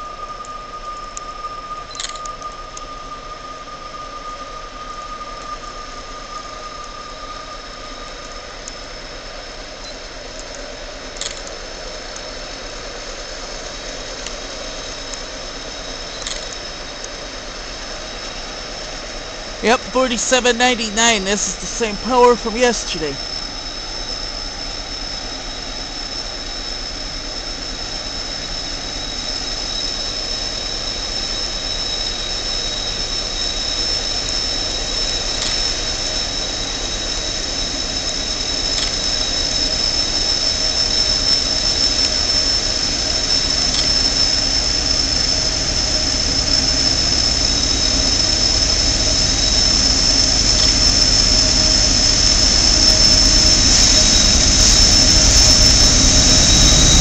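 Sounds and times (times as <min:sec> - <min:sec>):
diesel locomotive engine rumble: 0:23.0 - 0:57.0
high-pitched squeal: 0:35.8 - 0:57.0.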